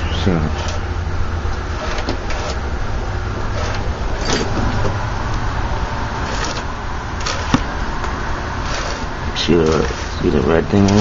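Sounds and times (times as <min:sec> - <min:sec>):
steady low hum: 0:00.0 - 0:11.0
lever clicks and metal scraping: 0:03.5 - 0:05.0.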